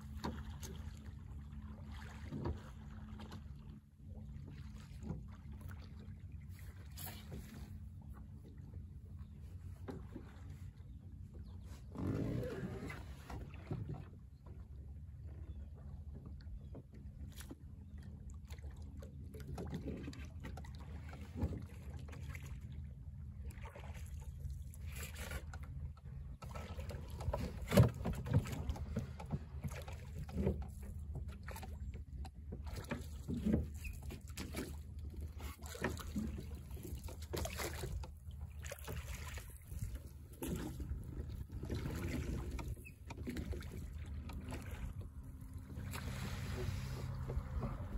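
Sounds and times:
boat knocks: 0.0s - 1.2s, 25.3s - 47.9s
water lapping against hull: 0.0s - 47.9s
steady low rumble: 43.9s - 47.9s.

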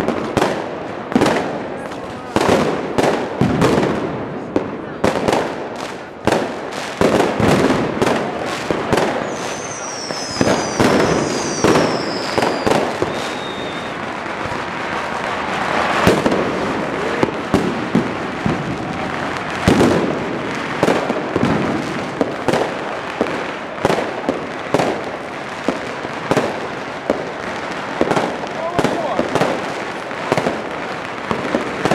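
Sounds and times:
fireworks bangs and crackles: 0.0s - 31.9s
high falling whistles: 9.2s - 14.0s.

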